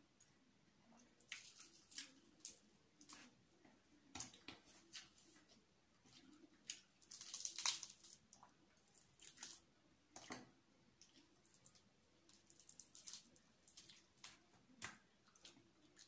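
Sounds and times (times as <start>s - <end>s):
fried meat crackling: 6.6s - 9.6s, 11.4s - 14.4s.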